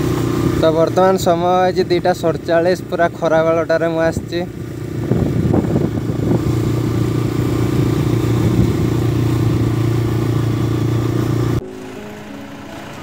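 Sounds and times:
motorcycle engine cruising: 0.0s - 13.0s
outdoor ambience: 0.0s - 13.0s
wind rushing over microphone: 3.7s - 11.6s.

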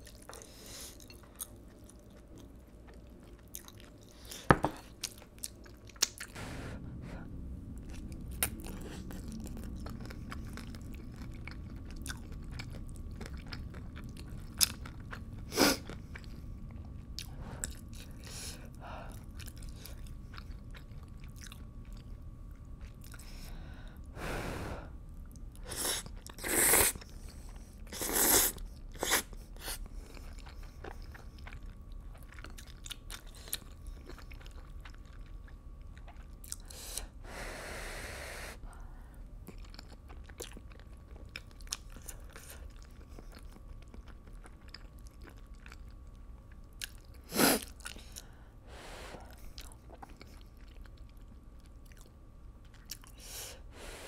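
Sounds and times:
chewing and biting: 0.0s - 6.4s, 7.8s - 18.3s, 19.1s - 23.4s, 28.8s - 36.8s, 39.4s - 48.3s, 49.3s - 53.2s
low steady hum: 0.0s - 54.0s.

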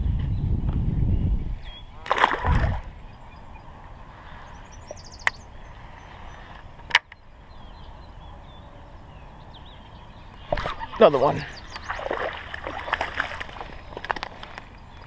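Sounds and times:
fish splashing into water: 2.0s - 2.9s, 11.8s - 14.4s
faint bird chirps: 3.0s - 6.5s, 7.1s - 13.0s.

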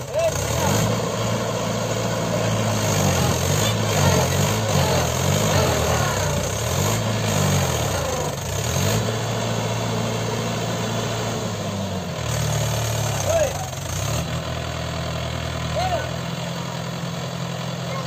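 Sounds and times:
diesel tractor engine running: 0.0s - 18.0s.

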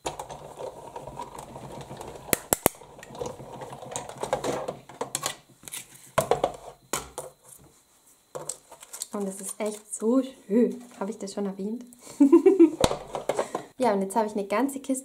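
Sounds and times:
plastic plates clattering: 0.0s - 5.4s, 12.8s - 13.7s.

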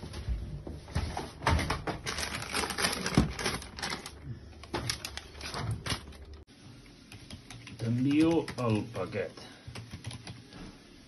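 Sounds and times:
paper rustling: 1.1s - 6.4s.

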